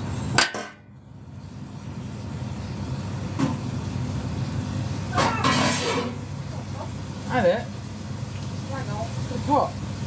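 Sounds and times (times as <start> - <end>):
kitchen background rumble: 0.0 - 10.0.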